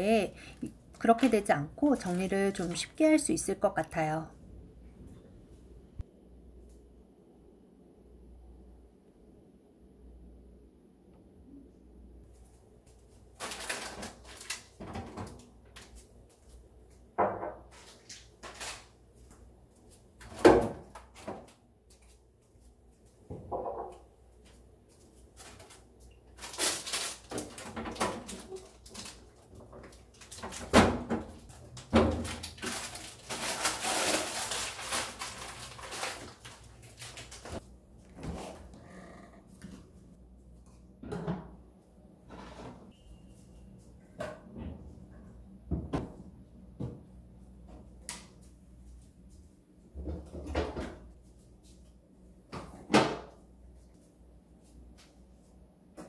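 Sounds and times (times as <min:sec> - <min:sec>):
packets rustling: 0:32.2 - 0:37.6.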